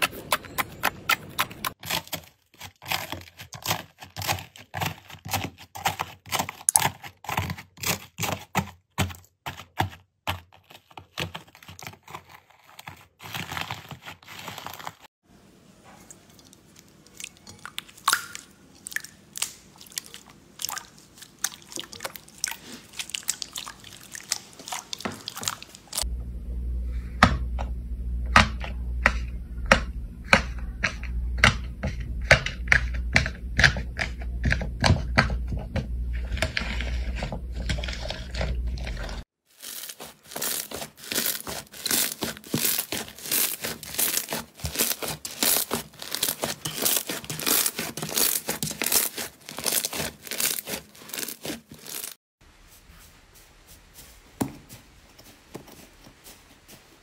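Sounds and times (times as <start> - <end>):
low steady hum: 25.8 - 39.2
slime crackling and popping: 39.5 - 52.2.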